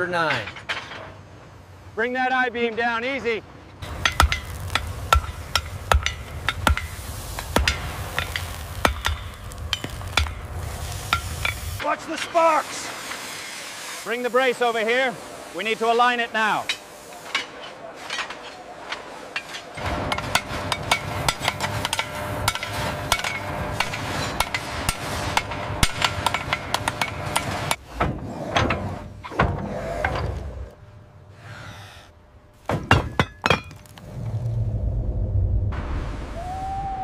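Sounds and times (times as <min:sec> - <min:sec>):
hammers striking iron: 0:03.8 - 0:10.5, 0:11.1 - 0:11.7, 0:16.6 - 0:28.1, 0:32.7 - 0:33.8
low rumble: 0:33.9 - 0:37.0.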